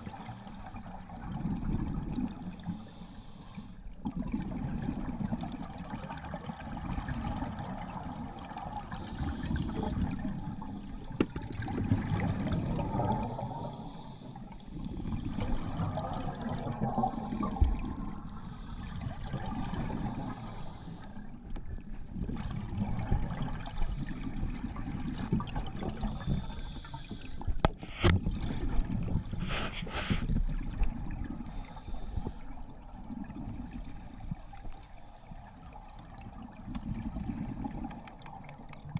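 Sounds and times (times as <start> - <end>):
diver breathing through regulator: 0.0 - 0.9, 2.3 - 3.8, 8.0 - 11.4, 13.0 - 21.4, 25.5 - 28.1, 29.1 - 30.3, 31.4 - 32.6.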